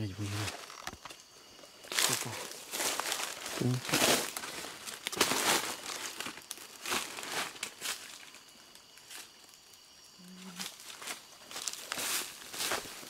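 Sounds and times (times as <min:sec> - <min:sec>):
rustling and crumpling: 0:01.9 - 0:09.4.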